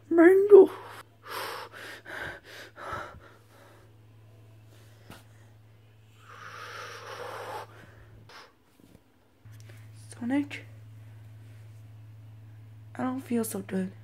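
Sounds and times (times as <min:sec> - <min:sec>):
steady low hum: 0:00.0 - 0:14.0
person breathing: 0:00.7 - 0:04.0, 0:04.7 - 0:08.6.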